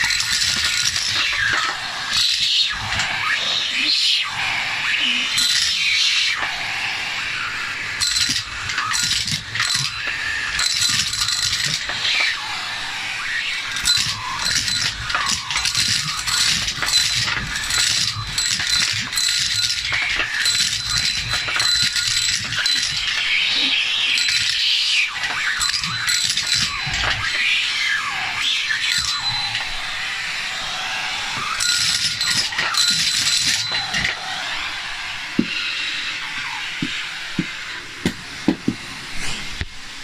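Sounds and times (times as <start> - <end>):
coins rattling up vacuum tube: 0.0 - 3.1, 5.0 - 6.4, 8.0 - 12.4, 13.6 - 27.5, 28.2 - 29.9, 31.1 - 34.5
vacuum cleaner whine: 0.0 - 40.0.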